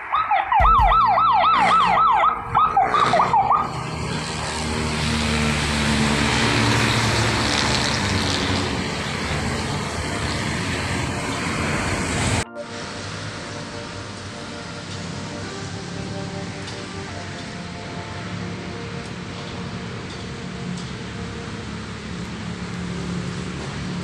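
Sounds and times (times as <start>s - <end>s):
siren yelping: 0.0s - 3.9s
traffic and road noise: 0.0s - 24.0s
low engine hum: 0.6s - 24.0s.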